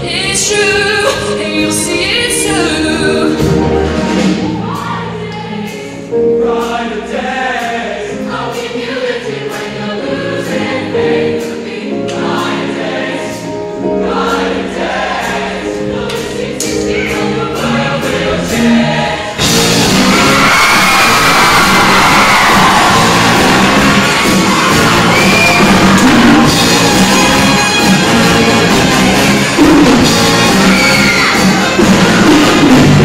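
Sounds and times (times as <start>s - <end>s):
choir singing with accompaniment: 0.0s - 33.0s
audience cheering and applause: 19.6s - 33.0s.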